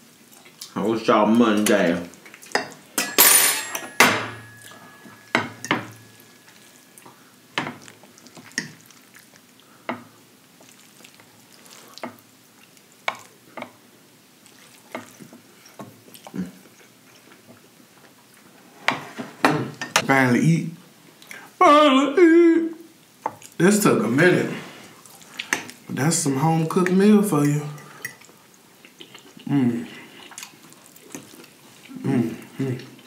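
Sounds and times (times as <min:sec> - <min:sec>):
chewing and lip smacks: 0:10.6 - 0:12.0, 0:16.0 - 0:17.4, 0:28.2 - 0:29.5, 0:30.1 - 0:31.9.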